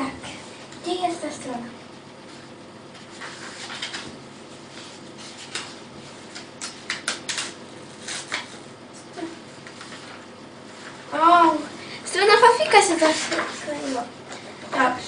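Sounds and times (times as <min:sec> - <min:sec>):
paper pages rustling: 0:02.2 - 0:09.0, 0:09.6 - 0:11.1, 0:12.4 - 0:14.4.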